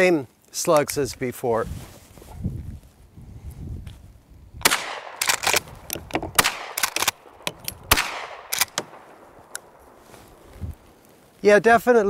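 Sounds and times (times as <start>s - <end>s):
shotgun shots with ringing echo: 4.6s - 5.7s, 6.4s - 10.0s
shotgun pump clacks: 4.7s - 9.7s.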